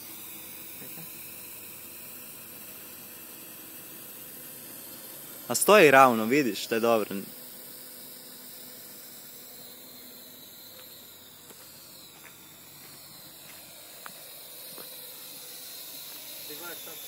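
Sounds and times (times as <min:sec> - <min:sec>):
drone rotors whining: 0:00.0 - 0:17.0
steady hiss: 0:00.0 - 0:17.0.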